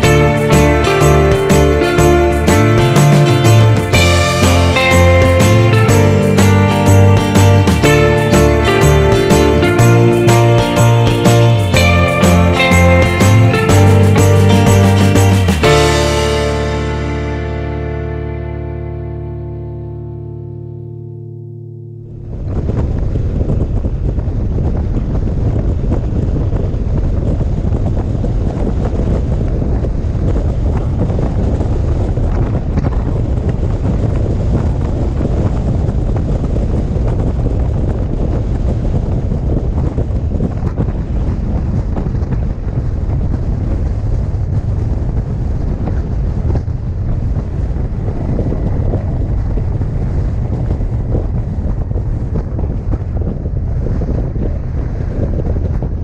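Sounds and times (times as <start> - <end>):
wind buffeting microphone: 22.2 - 56.0.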